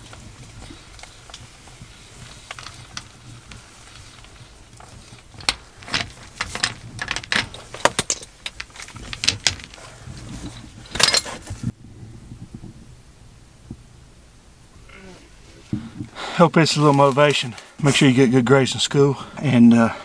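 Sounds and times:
metal tools clinking and rattling: 0:00.0 - 0:11.7
low steady hum: 0:00.0 - 0:17.8.

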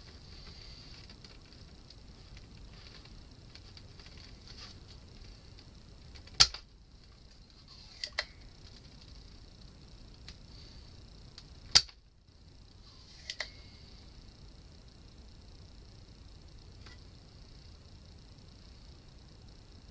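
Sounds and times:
faint steady hiss: 0:00.0 - 0:19.9
desoldering pump snapping: 0:05.1 - 0:09.2, 0:11.3 - 0:12.0, 0:13.2 - 0:13.6.

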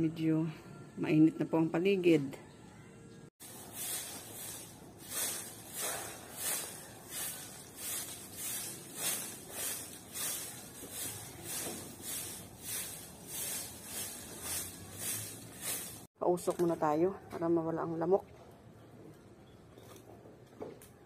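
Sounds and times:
broom sweeping dirt: 0:03.4 - 0:16.2.

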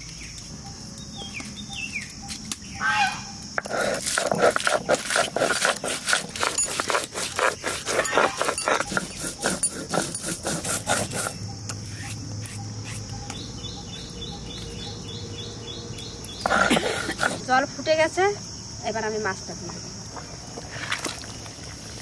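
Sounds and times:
insect chirping: 0:00.0 - 0:22.0
stone grinding spices: 0:03.6 - 0:13.0.

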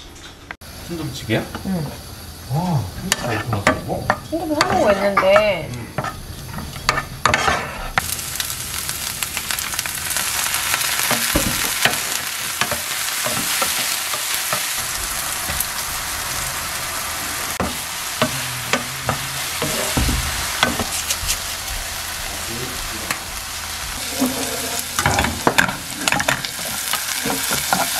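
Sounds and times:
food sizzling in frying pan: 0:00.6 - 0:27.9
wooden spatula scraping pan: 0:06.0 - 0:08.0, 0:17.5 - 0:22.0, 0:23.1 - 0:27.9.

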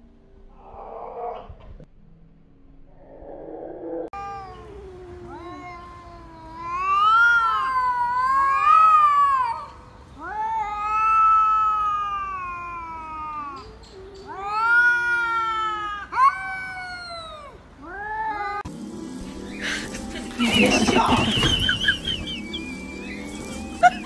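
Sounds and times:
cats yowling: 0:04.1 - 0:18.7
cat sharp cry: 0:04.2 - 0:18.6.

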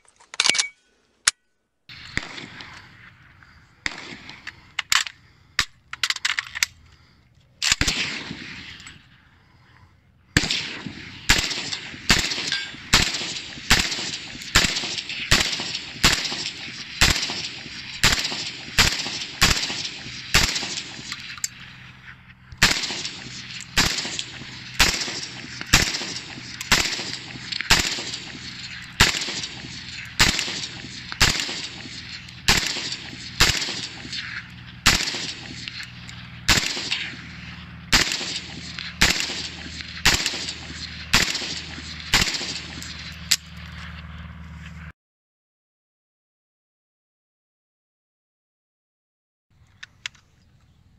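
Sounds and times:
rifle shots: 0:01.9 - 0:03.1, 0:03.8 - 0:05.0, 0:07.6 - 0:09.0, 0:10.4 - 0:43.6.

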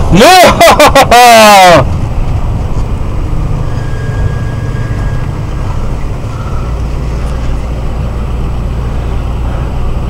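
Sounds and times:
engine low drone: 0:00.0 - 0:10.0.

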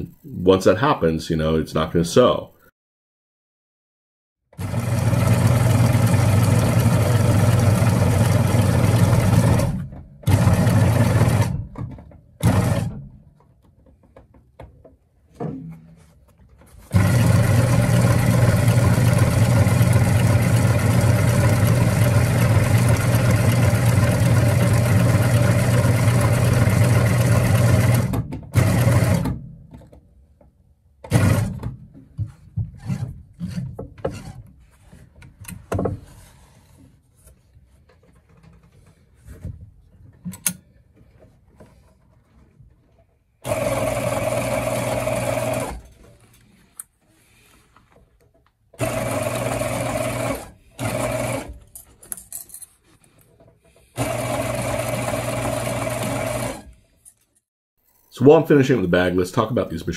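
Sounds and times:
sewing machine running: 0:04.6 - 0:11.7, 0:12.4 - 0:13.0, 0:16.9 - 0:29.3, 0:31.1 - 0:31.6, 0:43.4 - 0:45.9, 0:48.8 - 0:51.6, 0:54.0 - 0:56.7.

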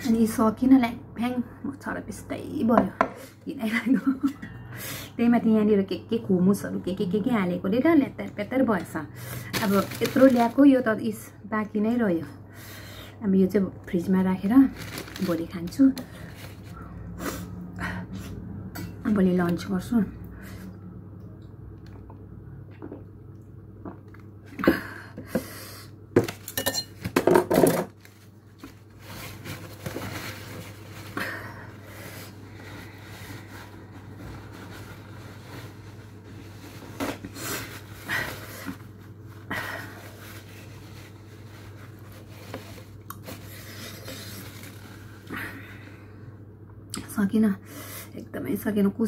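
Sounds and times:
low steady hum: 0:00.0 - 0:49.0
tableware clinking and clattering: 0:26.4 - 0:27.9.

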